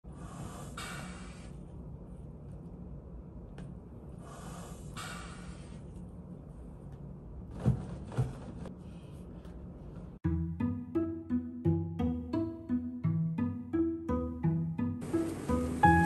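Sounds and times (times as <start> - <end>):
plucked string music: 10.2 - 16.0
soft hissing rushes: 15.0 - 16.0.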